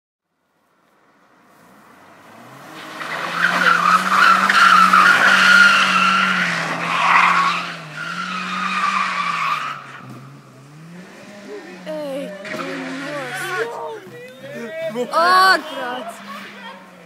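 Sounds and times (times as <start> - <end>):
car engine at steady revs: 0.9 - 17.0
tyres squealing: 2.8 - 17.0.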